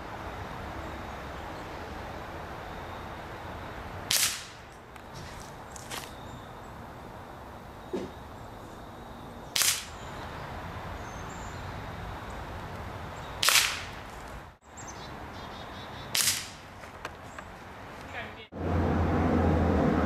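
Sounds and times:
air rifle cracks: 0:04.1 - 0:04.6, 0:09.6 - 0:10.0, 0:13.4 - 0:14.0, 0:16.1 - 0:16.6.

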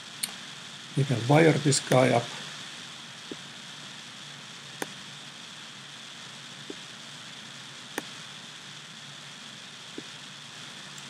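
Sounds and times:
microphone hiss: 0:00.0 - 0:11.0.

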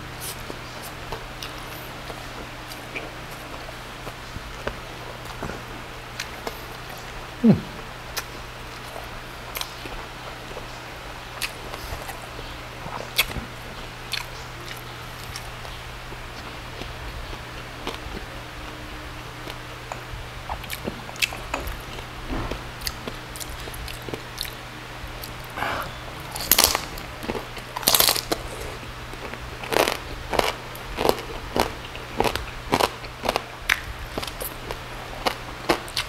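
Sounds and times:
crunchy chewing of pork crackling: 0:00.0 - 0:36.0
loud crunches: 0:25.5 - 0:34.6.

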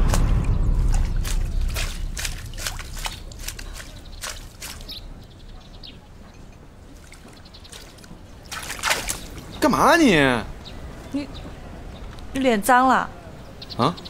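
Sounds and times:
loud rushing noise: 0:00.0 - 0:04.6
light water drips: 0:00.0 - 0:09.7.

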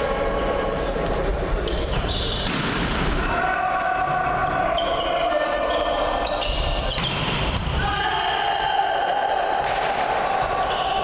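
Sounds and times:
sneakers squeaking on court floor: 0:01.6 - 0:02.8, 0:04.7 - 0:07.7
volleyball being hit: 0:02.4 - 0:03.1, 0:06.9 - 0:07.8, 0:09.6 - 0:10.6.

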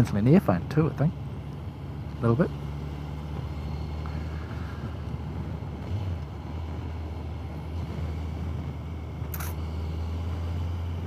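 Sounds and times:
motorcycle engine hum: 0:00.0 - 0:11.0
wind rush: 0:03.4 - 0:09.6.

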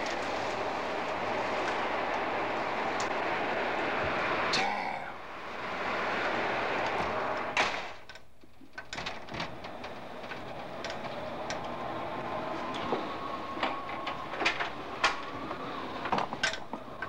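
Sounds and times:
storm wind rushing: 0:00.0 - 0:07.6.

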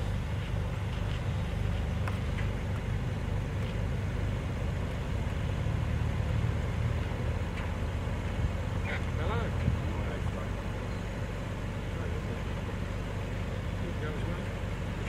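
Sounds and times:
gravel clicks: 0:00.0 - 0:05.3
engine and tyres on dirt rumbling: 0:00.0 - 0:15.0.

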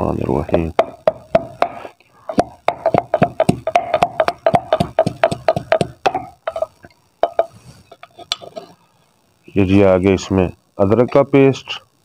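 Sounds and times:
wooden pestle pounding in mortar: 0:00.5 - 0:07.5.

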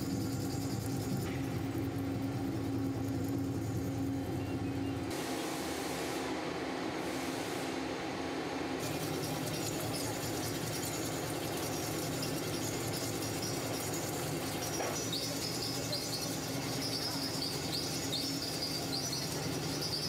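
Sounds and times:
milling machine cutting steel: 0:08.8 - 0:20.0.

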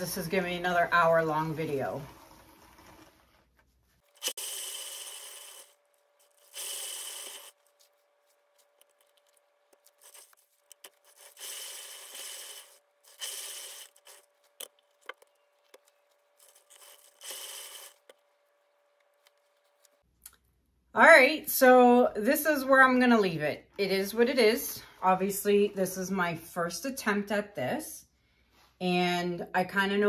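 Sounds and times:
spinner scraping whir: 0:09.9 - 0:18.2.

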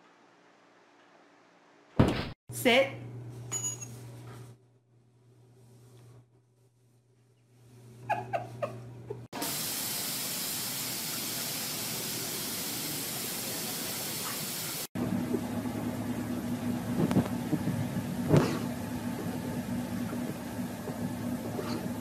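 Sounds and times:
spraying water hiss: 0:09.4 - 0:14.9.

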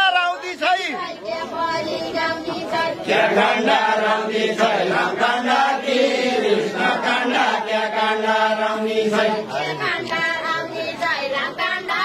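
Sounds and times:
men singing folk song together: 0:02.7 - 0:12.0.

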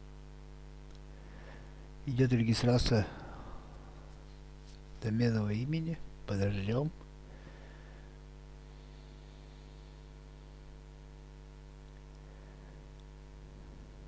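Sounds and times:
electrical mains hum: 0:00.0 - 0:14.0.

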